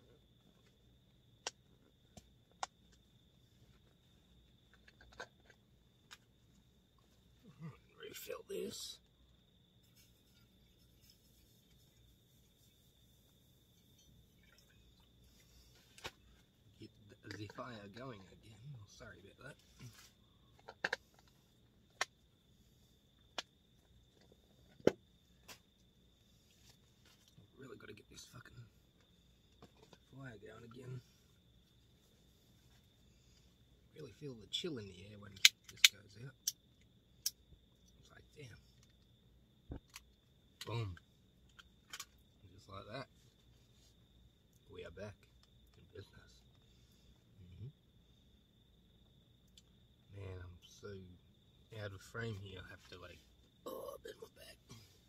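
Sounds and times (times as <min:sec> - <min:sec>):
faint steady high whine: 0:00.0 - 0:55.0.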